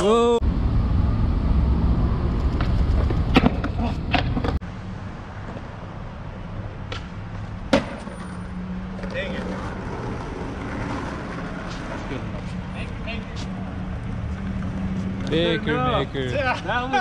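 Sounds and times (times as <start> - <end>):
skateboard wheels rolling: 1.6 - 4.6, 6.9 - 12.9.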